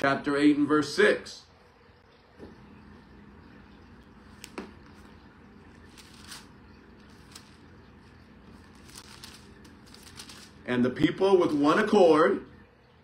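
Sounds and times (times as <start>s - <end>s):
low room noise: 0.0s - 13.0s
paper pages rustling: 5.7s - 10.7s.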